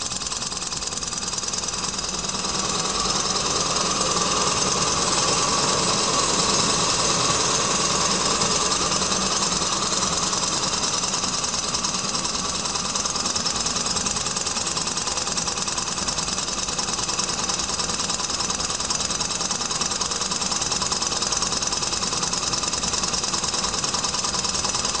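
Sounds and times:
engine mechanical clatter: 0:00.0 - 0:25.0.

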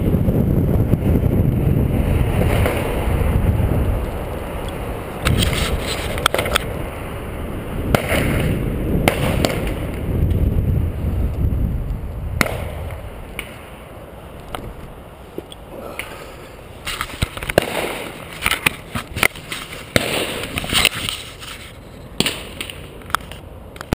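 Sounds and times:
wind buffeting microphone: 0:00.0 - 0:21.8
bike rattling over bumps: 0:16.8 - 0:22.0.

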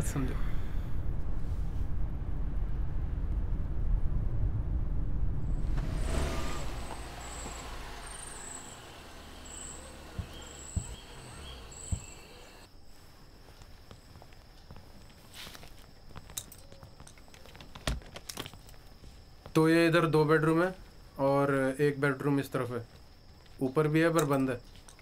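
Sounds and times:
car engine and road rumble: 0:01.0 - 0:12.7
insects chirping: 0:05.5 - 0:25.0
car doors thumping: 0:05.7 - 0:12.7.

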